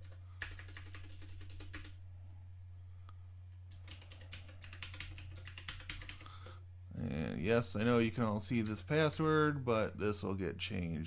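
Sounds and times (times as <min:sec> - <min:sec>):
computer keyboard typing: 0:00.0 - 0:02.0, 0:03.7 - 0:06.6
faint low hum: 0:00.0 - 0:11.0.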